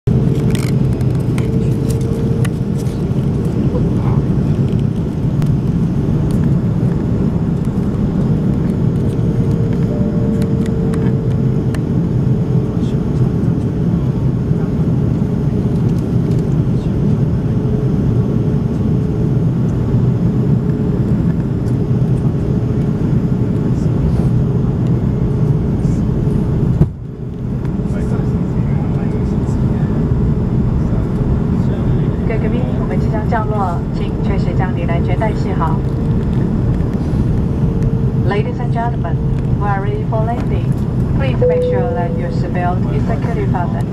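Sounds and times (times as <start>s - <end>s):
jet engines rumbling: 0.1s - 43.9s
faint steady tone: 41.2s - 43.2s.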